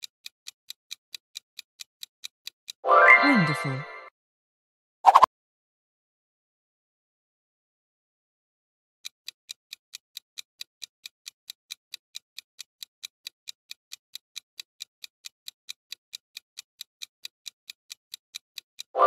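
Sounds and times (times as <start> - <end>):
fast clock ticking: 0.0 - 2.8, 9.0 - 19.0.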